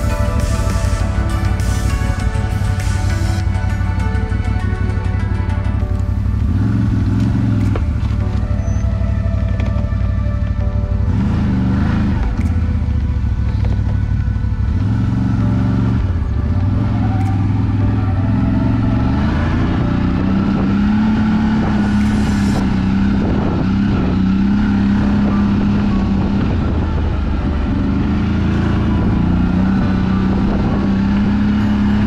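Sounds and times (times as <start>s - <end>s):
quad bike engine running: 0.0s - 32.0s.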